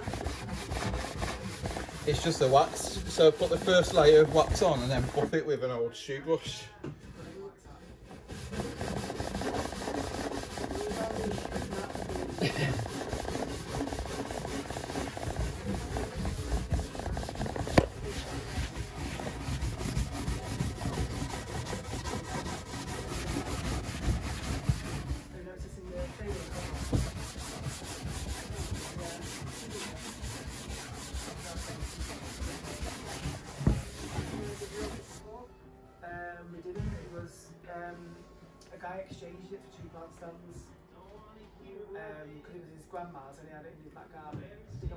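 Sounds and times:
brush scrubbing wood: 0:00.0 - 0:05.3, 0:08.0 - 0:35.2.

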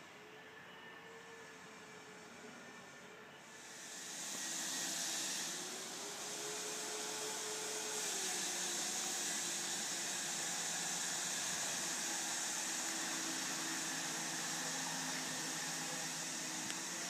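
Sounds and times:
excavator engine hum: 0:00.0 - 0:17.0
faint machine whine: 0:00.0 - 0:17.0
strong even hiss: 0:03.6 - 0:17.0.

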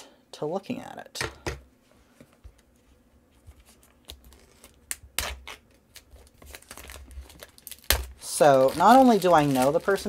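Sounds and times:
plastic shrink-wrap crinkling: 0:04.0 - 0:10.0.

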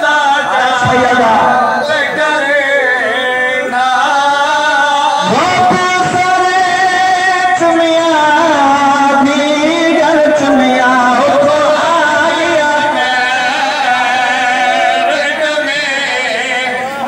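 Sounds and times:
men chanting lament over loudspeaker: 0:00.0 - 0:17.0.

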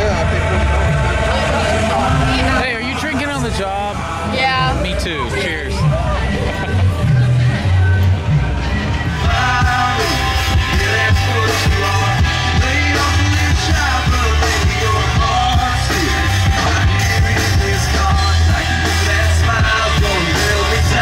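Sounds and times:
bass guitar line: 0:00.0 - 0:21.0
man singing into a microphone: 0:09.2 - 0:21.0.

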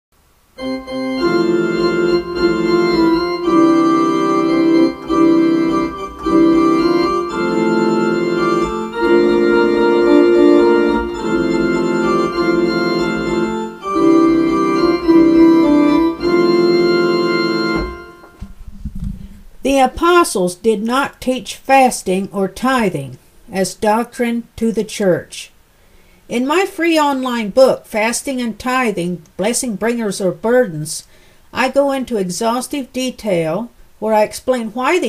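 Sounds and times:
instrumental music with held chords: 0:00.6 - 0:18.4.

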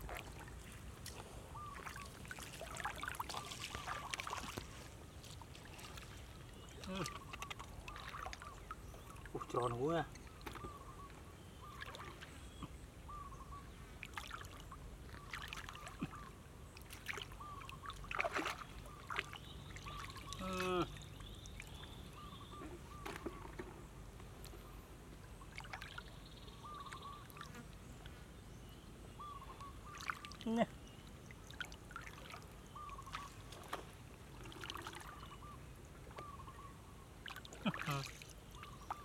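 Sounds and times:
fish splashing: 0:00.0 - 0:04.8, 0:18.0 - 0:19.3, 0:33.0 - 0:35.2
muddy water splashing and sloshing: 0:00.0 - 0:12.8, 0:14.0 - 0:23.8, 0:24.4 - 0:27.5, 0:29.3 - 0:36.4, 0:37.2 - 0:39.0.

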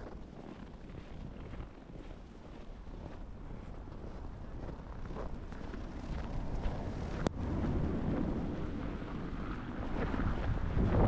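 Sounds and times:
footsteps crunching in snow: 0:00.0 - 0:07.2
wind buffeting microphone: 0:00.0 - 0:11.0.

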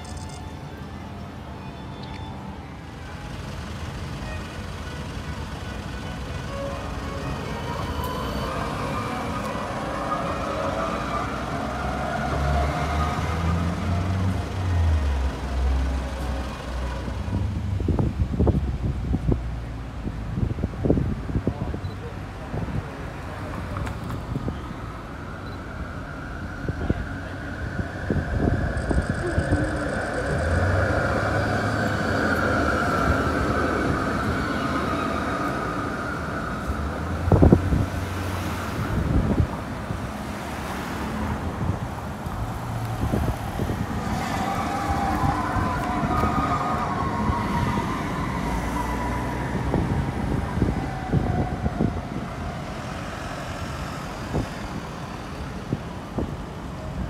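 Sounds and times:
road traffic passing: 0:00.0 - 0:57.0
whining tone: 0:25.4 - 0:37.5.

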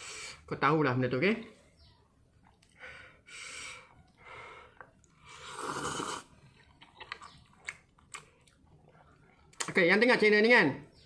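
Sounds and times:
slurping noodles: 0:05.2 - 0:07.8.

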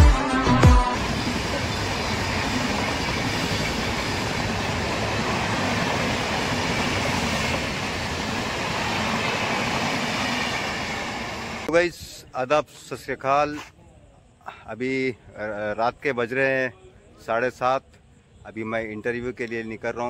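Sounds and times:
train passing at speed: 0:00.8 - 0:11.7.

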